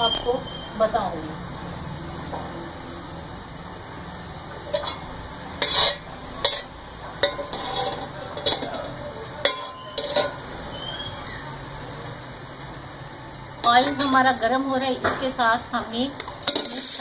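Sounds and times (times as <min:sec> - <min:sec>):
metal spatula scraping metal pot: 0:04.6 - 0:10.9, 0:13.6 - 0:14.7, 0:16.2 - 0:17.0.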